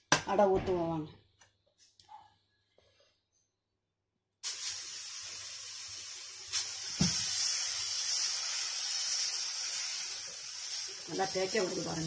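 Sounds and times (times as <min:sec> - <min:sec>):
batter sizzling on hot iron: 0:04.4 - 0:12.0.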